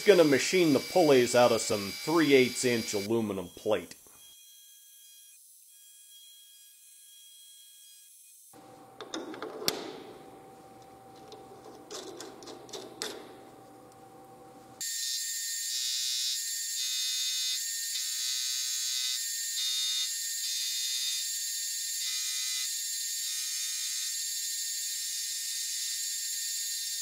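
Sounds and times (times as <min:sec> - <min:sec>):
metal lathe machining whine: 0:00.2 - 0:03.1
clicks and knocks in lathe chuck: 0:09.0 - 0:10.1, 0:11.2 - 0:13.4.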